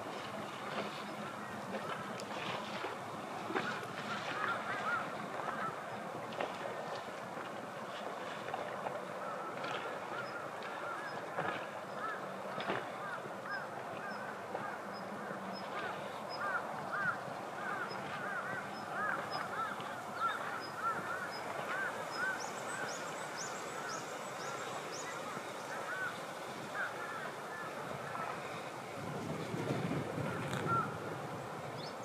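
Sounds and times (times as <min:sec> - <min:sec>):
birds calling: 0:03.5 - 0:06.0, 0:09.2 - 0:28.7, 0:30.3 - 0:31.0.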